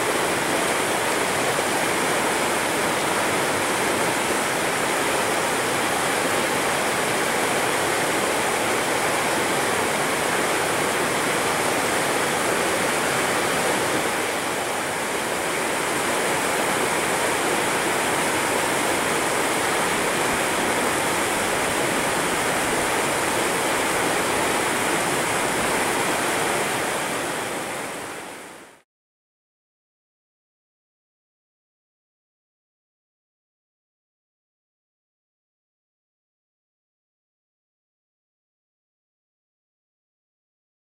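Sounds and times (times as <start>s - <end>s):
river rushing over rapids: 0.0s - 28.8s.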